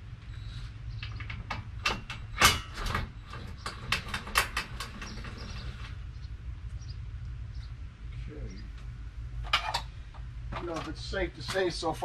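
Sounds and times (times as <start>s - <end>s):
sharp clicks and knocks: 1.0s - 6.0s, 8.7s - 11.7s.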